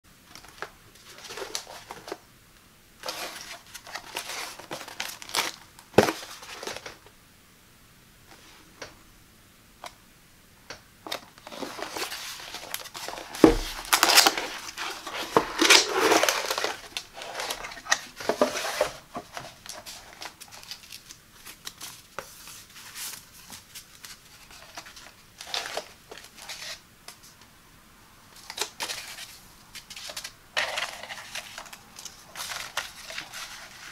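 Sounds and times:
cardboard scraping and crinkling: 0:00.4 - 0:02.2, 0:03.0 - 0:07.0, 0:11.1 - 0:26.8, 0:28.4 - 0:33.9.

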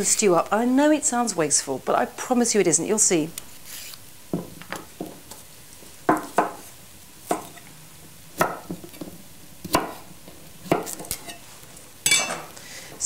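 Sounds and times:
knife chopping carrots on wooden board: 0:08.4 - 0:11.2.

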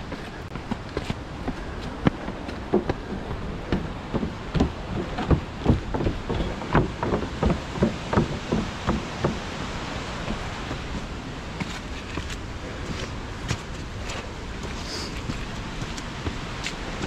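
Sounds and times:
running footsteps on wooden boardwalk: 0:00.0 - 0:17.0
steady hiss: 0:02.8 - 0:17.0.

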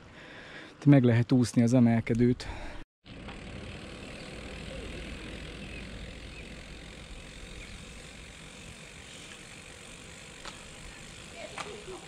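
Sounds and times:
bicycle road noise: 0:02.6 - 0:12.0.

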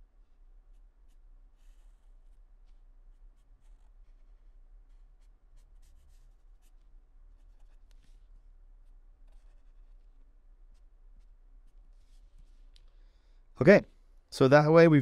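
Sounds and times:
pen scratching on paper: 0:00.7 - 0:08.3, 0:08.9 - 0:12.7.

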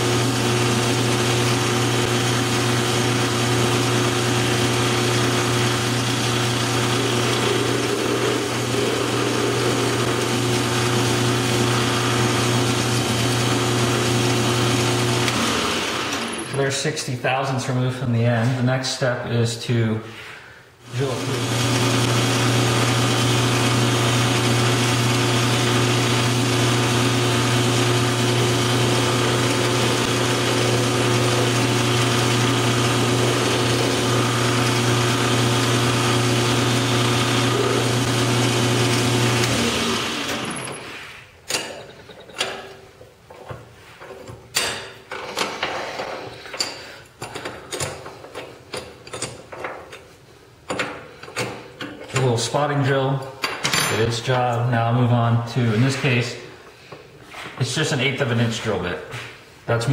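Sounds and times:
metal lathe motor hum: 0:00.0 - 0:16.6, 0:21.2 - 0:40.8.

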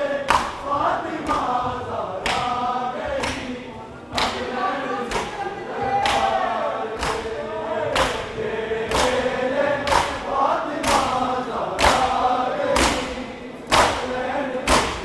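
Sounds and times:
crowd of men chanting: 0:00.0 - 0:15.0
hands slapping chests: 0:00.3 - 0:01.6, 0:02.2 - 0:03.5, 0:04.2 - 0:04.5, 0:05.1 - 0:05.4, 0:06.0 - 0:06.4, 0:07.0 - 0:14.1, 0:14.7 - 0:15.0.

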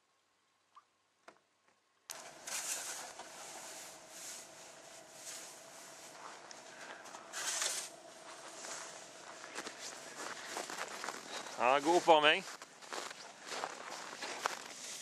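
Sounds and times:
snow shovels scraping snow: 0:02.1 - 0:15.0.

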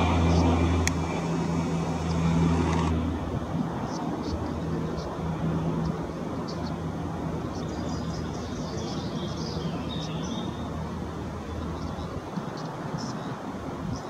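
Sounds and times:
low hum and rumble: 0:00.0 - 0:12.2
small birds chirping: 0:03.8 - 0:14.0.

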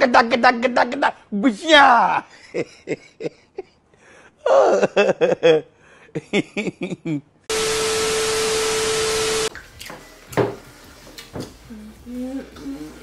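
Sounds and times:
man laughing: 0:02.3 - 0:03.8, 0:04.4 - 0:07.4
tv static hiss with tone: 0:07.5 - 0:09.5.

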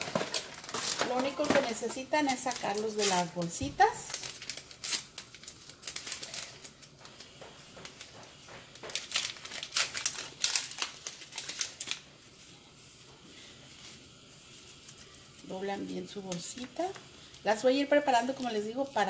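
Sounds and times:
paper tea bags crinkling: 0:00.0 - 0:19.0.

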